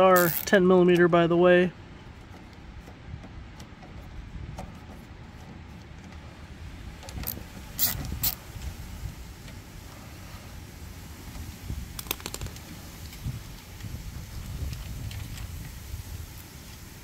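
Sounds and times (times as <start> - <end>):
ratchet wrench clicking: 0.2 - 0.5, 7.1 - 8.4.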